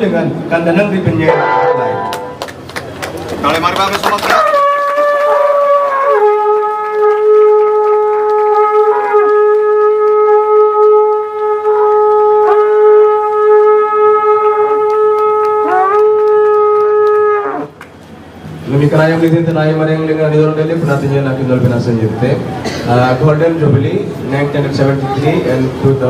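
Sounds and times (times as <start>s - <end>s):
horn blowing long note: 1.2s - 2.5s, 4.4s - 17.8s.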